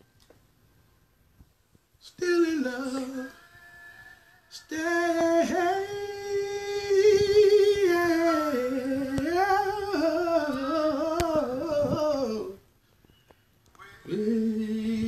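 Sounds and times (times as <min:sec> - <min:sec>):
man singing unaccompanied: 0:02.0 - 0:12.7, 0:13.8 - 0:15.0.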